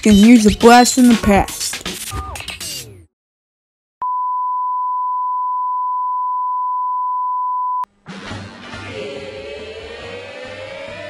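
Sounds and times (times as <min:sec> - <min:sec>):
music: 0:00.0 - 0:03.1, 0:07.9 - 0:11.0.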